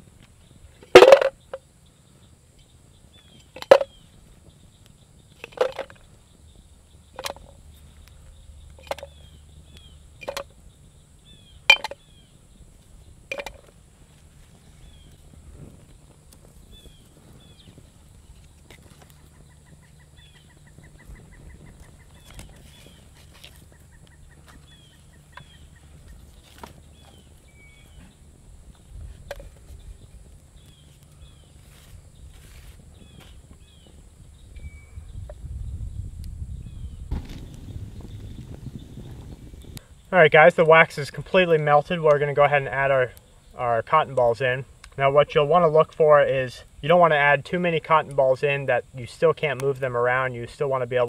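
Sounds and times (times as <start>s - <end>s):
campfire crackling: 0.0s - 34.5s, 37.0s - 51.0s
birds chirping: 0.0s - 51.0s
wax clunking into metal can: 0.9s - 1.4s.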